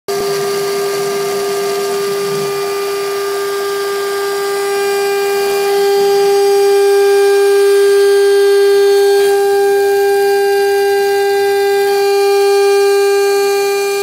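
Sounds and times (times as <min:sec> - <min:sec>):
cutter milling acrylic: 0:00.1 - 0:14.0
router spindle whine: 0:00.1 - 0:14.0.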